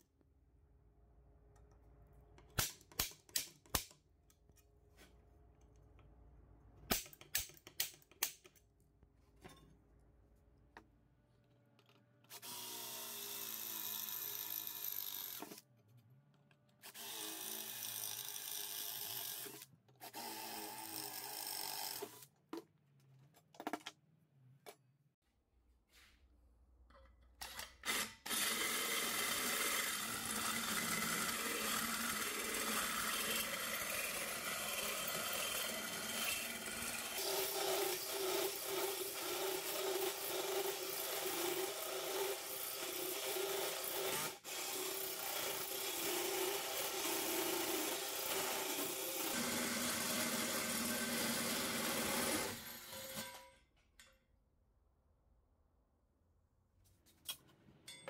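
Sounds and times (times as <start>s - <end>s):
drill motor tone: 12.3s - 15.6s
hole saw grinding through metal: 27.9s - 53.5s.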